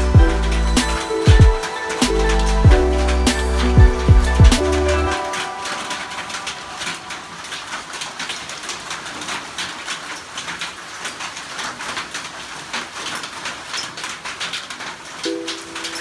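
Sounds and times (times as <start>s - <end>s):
background music: 0.0s - 7.4s, 15.3s - 16.0s
rain: 0.0s - 16.0s
hailstones clattering: 5.2s - 16.0s.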